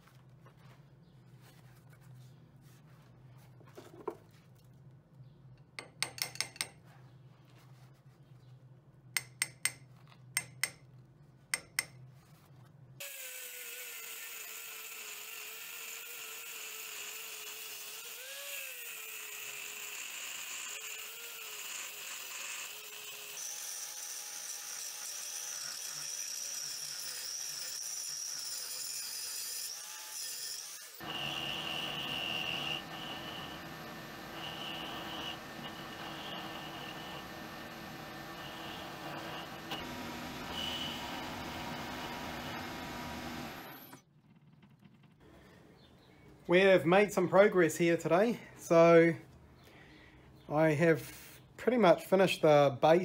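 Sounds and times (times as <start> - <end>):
sharp metal taps: 5.8 - 6.8, 9.2 - 10.8, 11.6 - 12.0
angle grinder cutting steel: 13.0 - 44.0.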